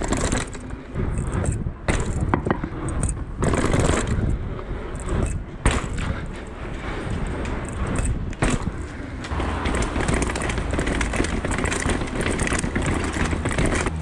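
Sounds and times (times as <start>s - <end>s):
bike knocks and rattles: 0.0s - 14.0s
bike tyres rolling and scraping: 0.0s - 14.0s
wind rumble on microphone: 0.0s - 14.0s.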